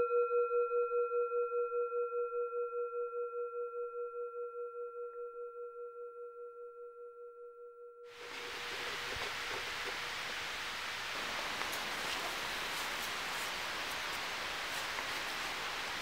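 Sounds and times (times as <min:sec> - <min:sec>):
steady hiss: 0:08.2 - 0:16.0.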